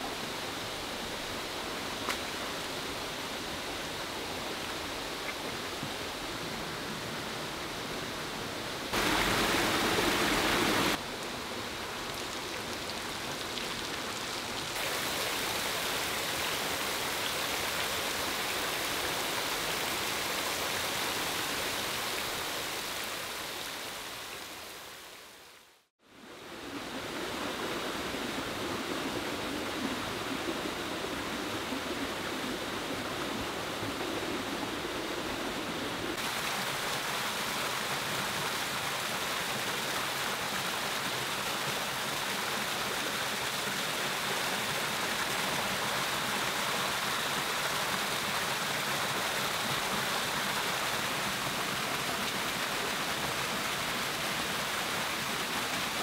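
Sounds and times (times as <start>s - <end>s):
rocky stream: 0.0s - 25.6s, 26.3s - 56.0s
small waterfall splashing over rocks: 8.8s - 25.9s, 26.7s - 56.0s
water splashing: 8.9s - 11.0s.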